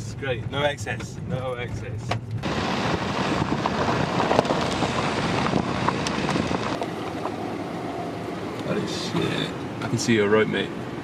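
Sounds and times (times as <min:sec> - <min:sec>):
wind buffeting microphone: 0:00.6 - 0:07.8
tyres crunching on gravel: 0:02.4 - 0:08.0.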